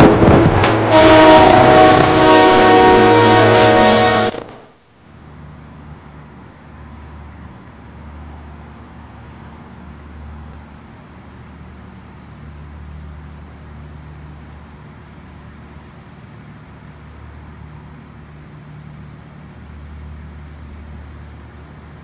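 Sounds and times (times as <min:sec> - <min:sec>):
tyre and road noise: 0:00.0 - 0:22.0
engine rumble: 0:10.3 - 0:22.0.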